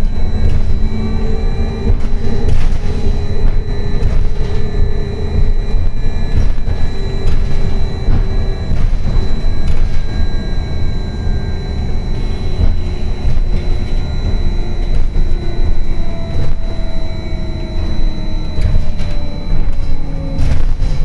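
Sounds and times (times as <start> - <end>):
electric drive tones: 0.0 - 21.0
road and tyre rumble: 0.0 - 21.0
steady high whine: 0.0 - 21.0.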